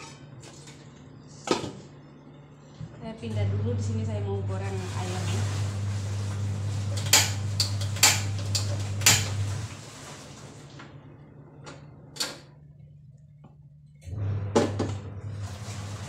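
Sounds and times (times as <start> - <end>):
steady low hum: 0.8 - 9.8.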